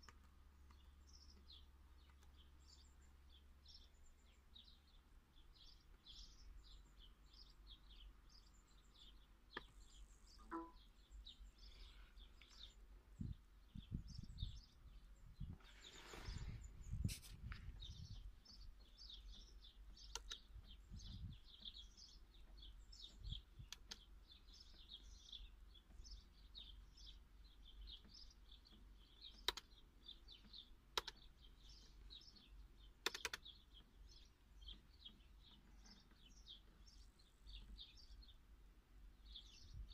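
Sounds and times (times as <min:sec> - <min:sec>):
small birds chirping: 0:00.0 - 0:39.9
sharp clicks: 0:20.0 - 0:20.6, 0:23.6 - 0:24.1, 0:28.0 - 0:29.8, 0:30.4 - 0:32.0, 0:32.9 - 0:33.9.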